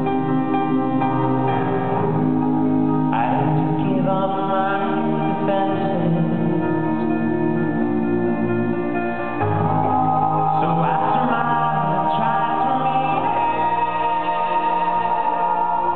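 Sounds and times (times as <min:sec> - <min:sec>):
acoustic guitar: 0:00.0 - 0:15.9
harmony backing vocals: 0:00.0 - 0:15.9
keyboard: 0:00.0 - 0:15.9
man singing: 0:03.1 - 0:08.8, 0:09.4 - 0:15.9.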